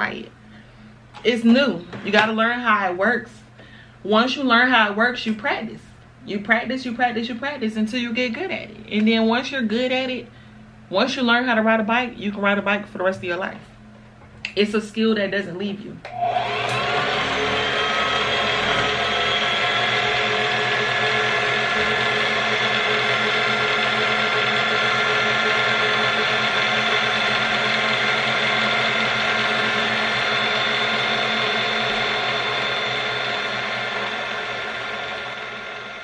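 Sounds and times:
sewing machine running: 0:16.2 - 0:36.0.

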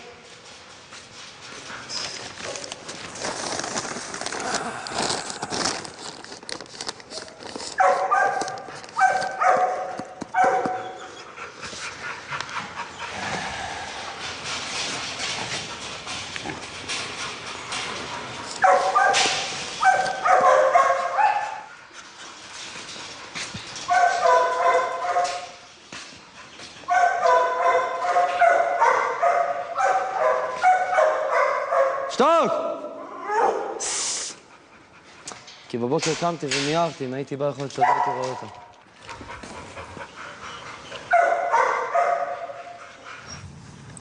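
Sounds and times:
dogs barking and yelping: 0:07.1 - 0:32.1, 0:32.8 - 0:33.8, 0:39.0 - 0:43.8
steady hiss: 0:33.8 - 0:34.4.

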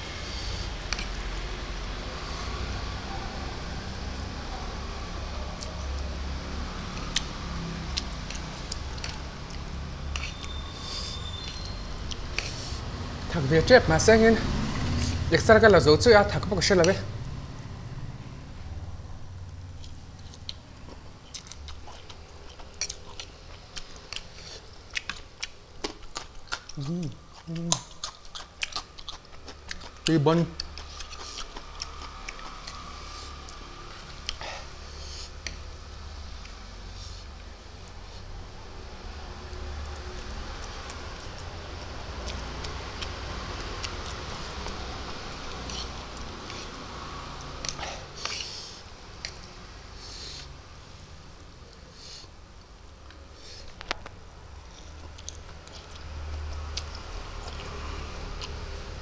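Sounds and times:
man chewing noodles: 0:00.0 - 0:13.3, 0:19.6 - 0:50.6, 0:51.6 - 0:59.0
steady low hum: 0:00.0 - 0:59.0
eating clicks and smacks: 0:06.9 - 0:10.6, 0:19.8 - 0:33.6, 0:54.9 - 0:58.9.

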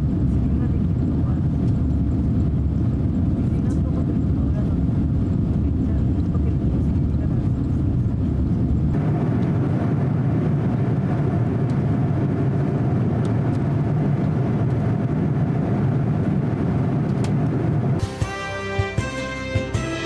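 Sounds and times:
jet cabin roar: 0:00.0 - 0:20.0
music: 0:18.0 - 0:20.0.

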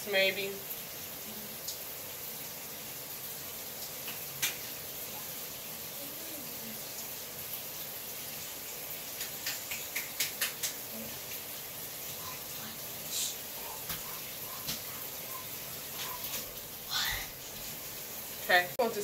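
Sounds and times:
steady hiss: 0:00.1 - 0:19.0
soft clicks from hands in wet hair: 0:04.0 - 0:04.7, 0:09.1 - 0:11.4, 0:13.8 - 0:14.9.

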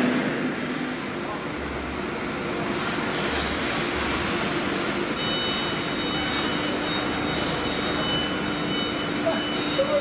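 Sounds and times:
steady high whine: 0:00.0 - 0:02.6.

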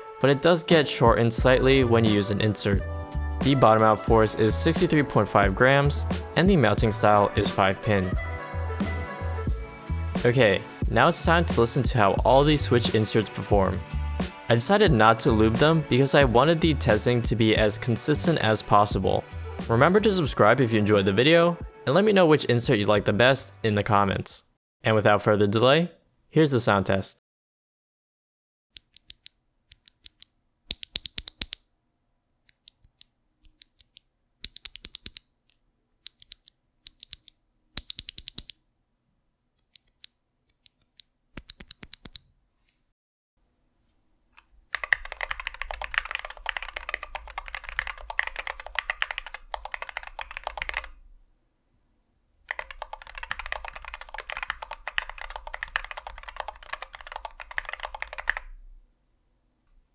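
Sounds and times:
fast mechanical keyboard typing: 0:44.7 - 0:51.0, 0:52.5 - 0:58.5.

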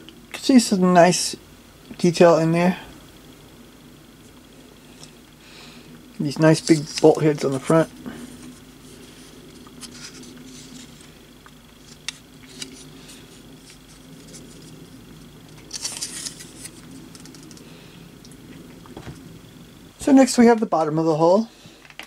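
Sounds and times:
low background hum: 0:00.0 - 0:22.0
scratchy rustle: 0:06.4 - 0:11.2, 0:11.8 - 0:17.7.

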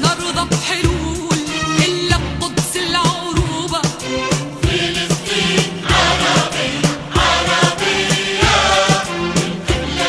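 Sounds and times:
steady drum beat: 0:00.0 - 0:10.0
voices singing held notes: 0:04.5 - 0:10.0.

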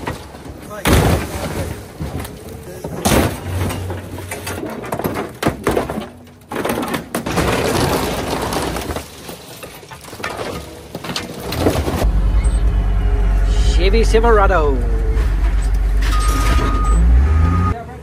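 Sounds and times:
glass cracking: 0:00.0 - 0:12.0
sheet metal crunching and creaking: 0:00.0 - 0:17.7.

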